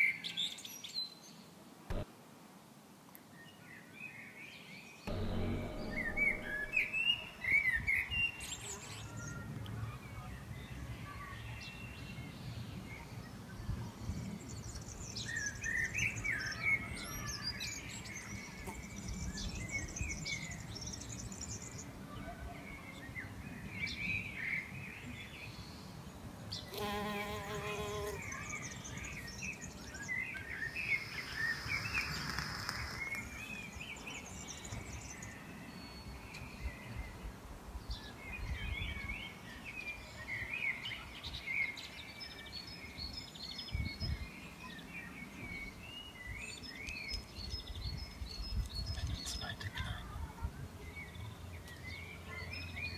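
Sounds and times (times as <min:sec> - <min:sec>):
low background rumble: 0:05.1 - 0:07.3
short buzzy pitched sound: 0:05.1 - 0:07.4.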